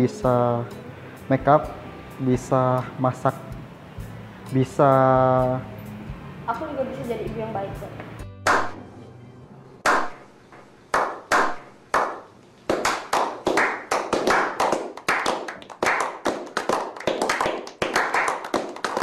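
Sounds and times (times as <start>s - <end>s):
men clapping: 8.5s - 8.8s, 9.9s - 10.1s, 10.9s - 19.0s.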